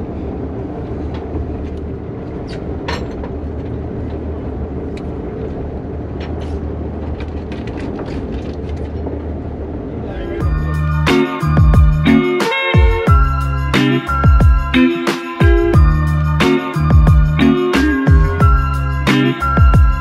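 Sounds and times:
music: 10.1 - 20.0.

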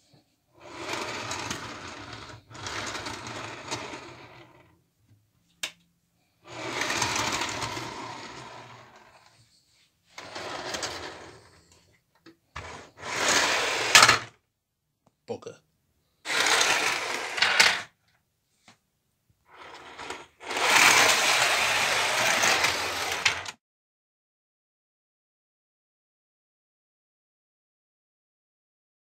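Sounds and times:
model train wheels rattling on rails: 0.6 - 4.5, 6.5 - 9.0, 10.2 - 11.6, 12.6 - 14.3, 16.3 - 17.9, 19.5 - 23.6.

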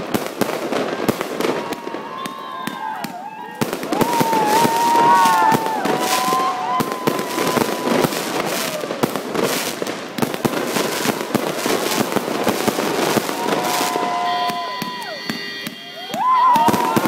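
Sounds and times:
fireworks pops and crackling bursts: 0.0 - 17.0.

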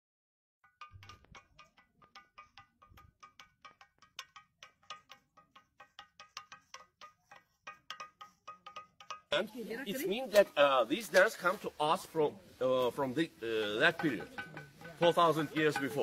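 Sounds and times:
stone struck with clinking ring: 13.6 - 16.0.

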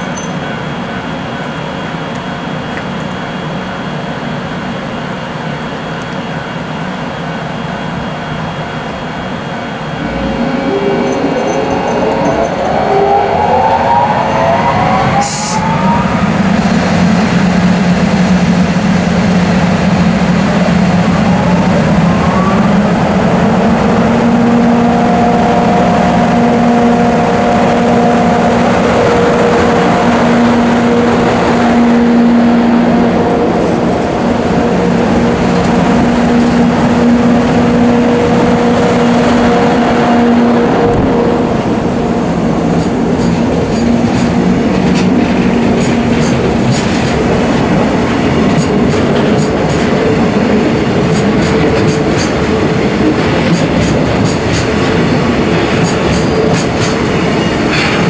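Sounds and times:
electric locomotive whine: 0.0 - 58.0
freight train mechanical din: 0.0 - 58.0.

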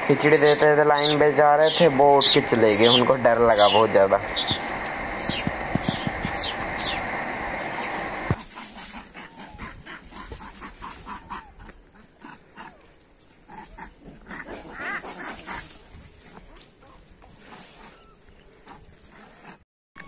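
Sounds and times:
monkeys squeaking and chirping: 0.1 - 10.6.

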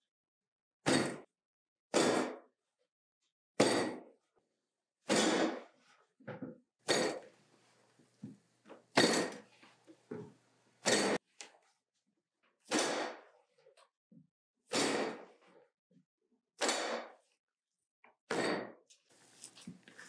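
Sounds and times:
soft handling noises: 19.0 - 20.0.

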